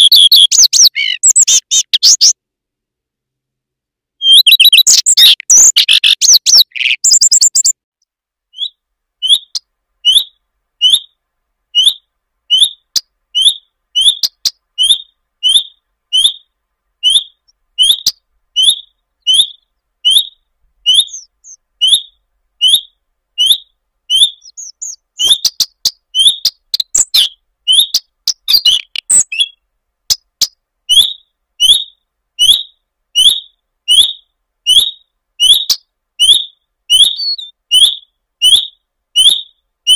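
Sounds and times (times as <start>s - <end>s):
bird whistled calls with ticks: 0.0s - 2.4s, 4.2s - 7.8s, 8.5s - 11.2s, 11.8s - 39.9s.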